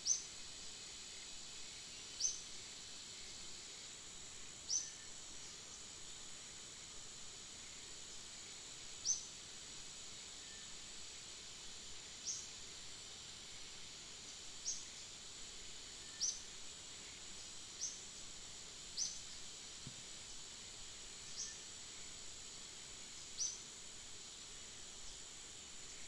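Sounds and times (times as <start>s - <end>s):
insects droning: 0.0s - 26.0s.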